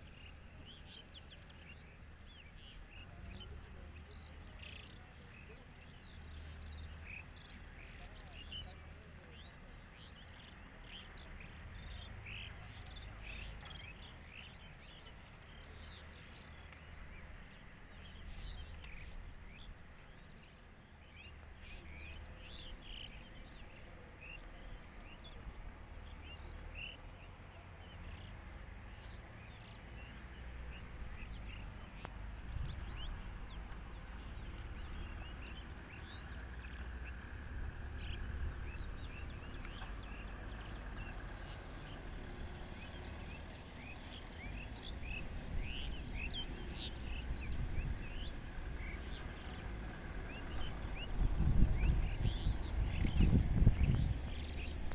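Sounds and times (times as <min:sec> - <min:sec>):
small birds chirping: 0:00.0 - 0:54.9
low rumble: 0:47.0 - 0:54.9.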